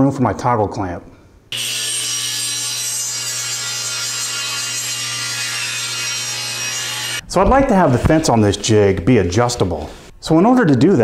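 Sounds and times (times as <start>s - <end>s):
table saw blade cutting wood: 1.5s - 10.1s
saw motor hum: 1.6s - 10.1s.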